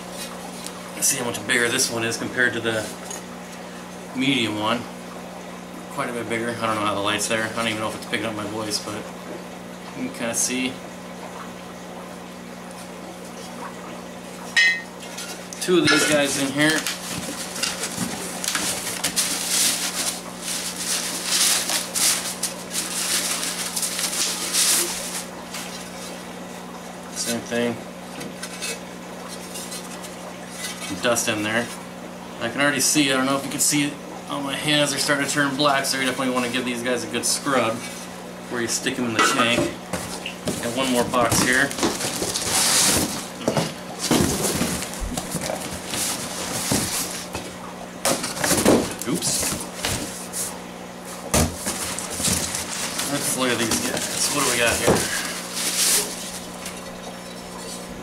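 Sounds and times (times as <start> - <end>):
bubble wrap crinkling: 16.1 - 26.0, 51.6 - 56.8
cardboard flaps scraping and rustling: 16.1 - 26.2, 39.9 - 56.8.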